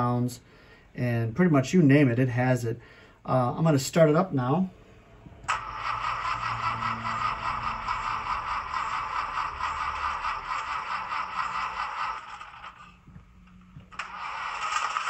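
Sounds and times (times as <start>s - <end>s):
simulated engine from small speaker: 4.8s - 15.0s.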